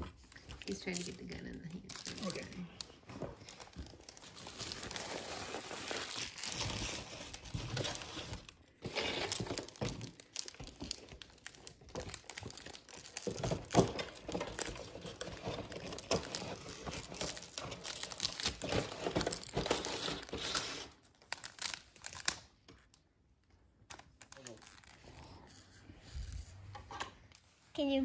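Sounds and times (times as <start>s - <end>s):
wrapper crinkling: 0.1s - 23.0s
scissors cutting wrapper: 0.6s - 2.9s, 8.9s - 22.5s.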